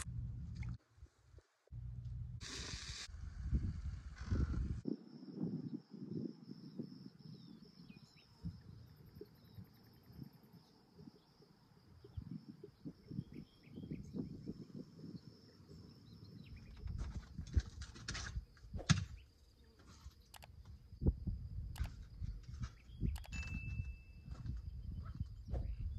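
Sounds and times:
low irregular rumble: 0.0 - 4.8.

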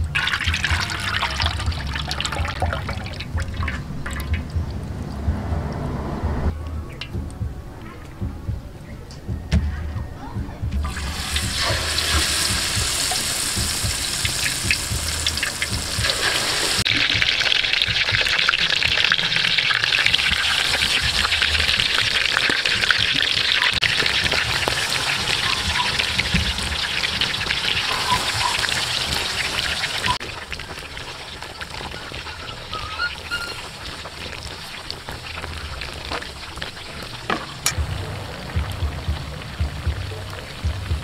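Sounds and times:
hot oil sizzling in wok: 10.8 - 41.0.

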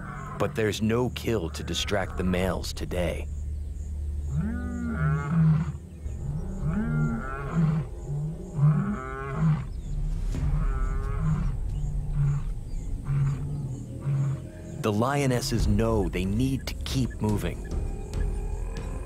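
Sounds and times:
lion roaring: 4.3 - 14.8
lion grunting: 4.3 - 19.0.

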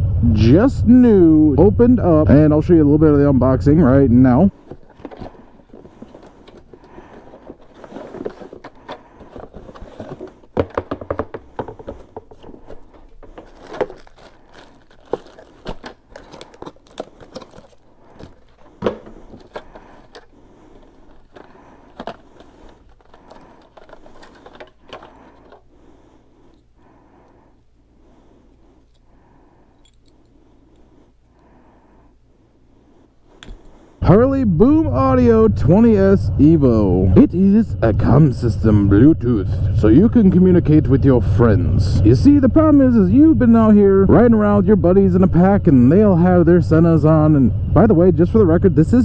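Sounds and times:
cardboard and plastic crinkling: 4.5 - 25.7
clicks and knocks of parts: 4.6 - 25.7, 29.8 - 30.9.

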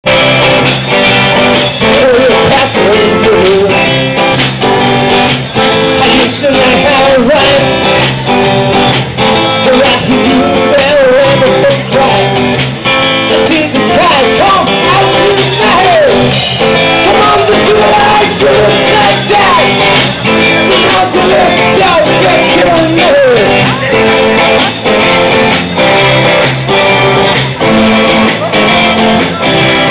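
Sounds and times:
strummed guitar: 0.0 - 29.9
person singing: 1.4 - 4.3, 5.6 - 8.4, 9.4 - 12.6, 13.2 - 24.6.

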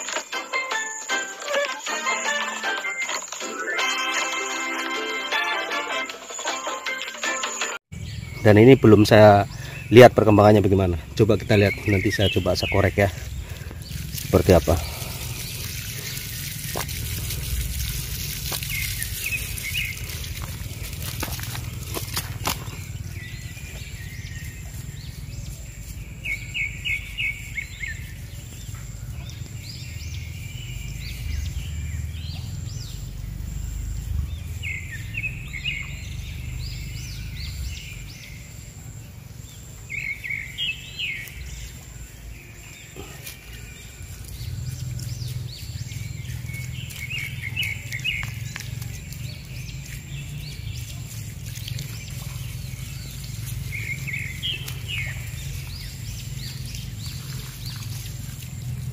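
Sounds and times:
birds chirping: 0.0 - 58.9
low rumble: 10.6 - 38.1
tool scratching in wet soil: 12.8 - 23.9.

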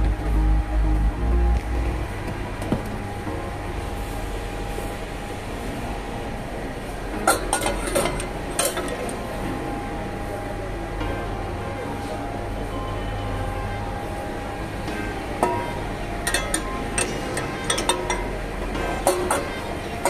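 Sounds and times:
background hum: 0.0 - 6.2
saucepans clinking together: 16.3 - 18.4.

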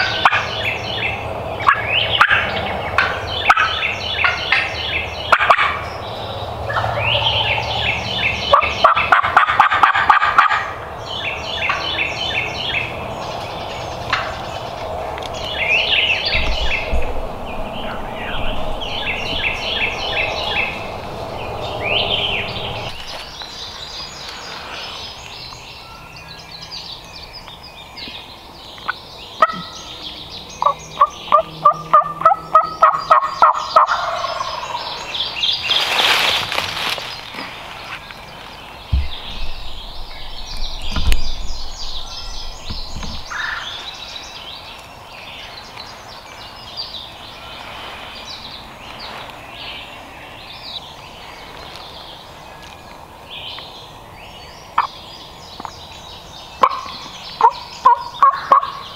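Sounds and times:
turkey gobbling: 0.0 - 0.5, 1.6 - 5.8, 8.4 - 10.9, 30.6 - 35.0, 56.6 - 58.8.

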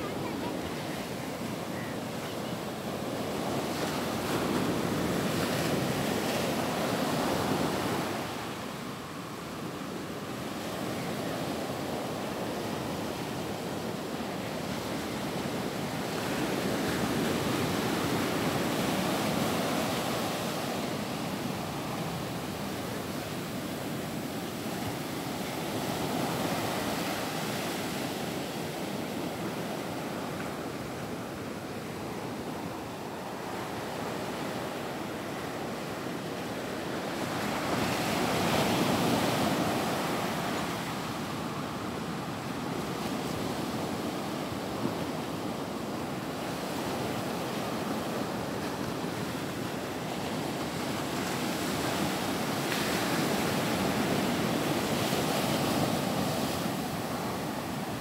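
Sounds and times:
waves breaking on shore: 0.0 - 58.0.

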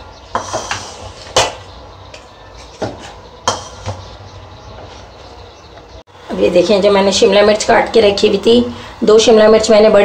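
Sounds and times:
spatula knocking and scraping pan: 0.2 - 4.2.

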